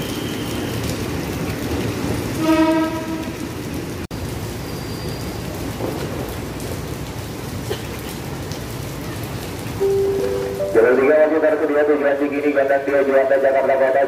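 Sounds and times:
heavy rain: 0.0s - 14.0s
train horn blast: 2.4s - 3.4s
electric train passing: 9.8s - 12.0s.

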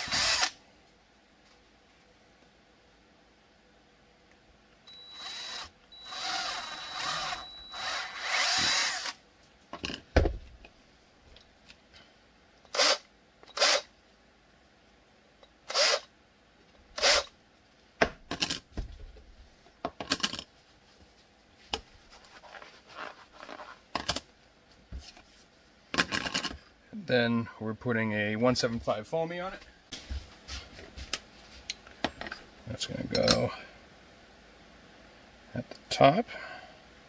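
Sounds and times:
cordless drill whining: 0.0s - 0.6s, 4.9s - 9.2s
cloth rubbing: 22.0s - 23.8s.

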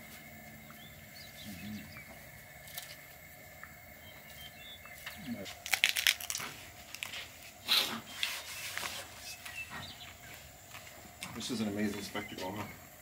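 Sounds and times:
crinkling and rustling: 5.4s - 9.9s.

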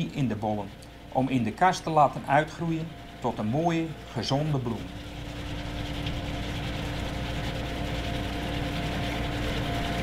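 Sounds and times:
machine engine hum with whine: 0.0s - 10.0s.

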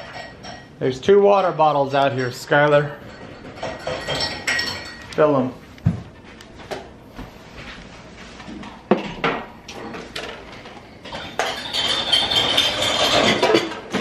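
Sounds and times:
dishes and cutlery clinking: 0.0s - 0.8s, 1.4s - 5.5s, 8.9s - 14.0s.

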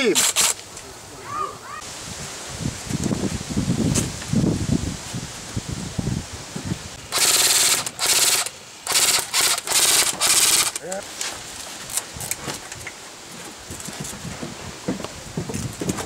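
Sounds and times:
airsoft rifle rapid fire: 0.1s - 0.6s, 7.1s - 10.8s.

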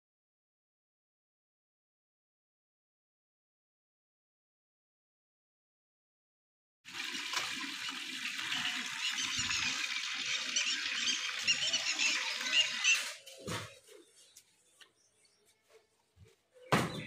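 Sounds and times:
many small birds chirping: 8.4s - 17.0s.

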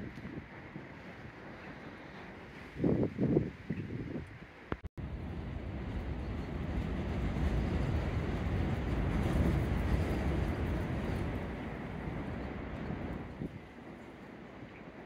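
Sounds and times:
storm wind buffeting microphone: 0.0s - 15.0s.

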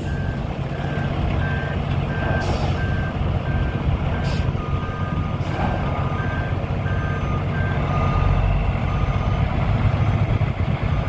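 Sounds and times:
diesel truck engine rumbling: 0.0s - 11.0s
backup alarm beeping: 6.2s - 9.4s.

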